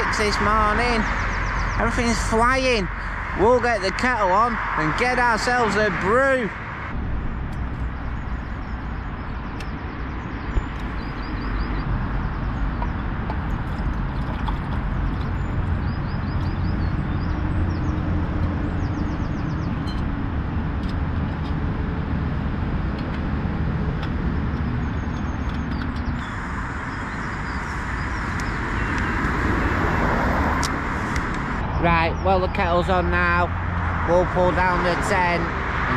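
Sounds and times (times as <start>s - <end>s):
busy road traffic roar: 0.0s - 35.9s
bird chirps: 0.3s - 3.2s, 7.8s - 13.0s.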